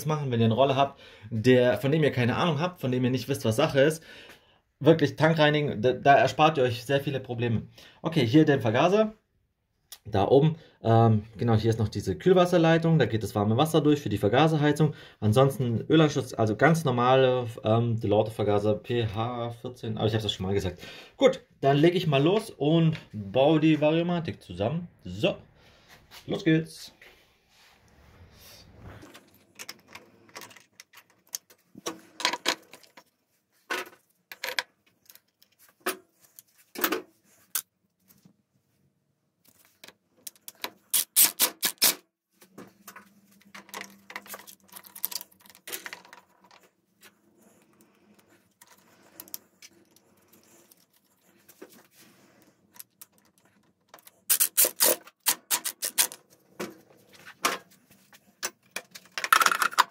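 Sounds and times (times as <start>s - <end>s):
parts clicking and knocking: 29.0s - 33.1s, 33.7s - 37.7s, 39.8s - 46.8s, 52.6s - 56.8s, 58.4s - 59.9s.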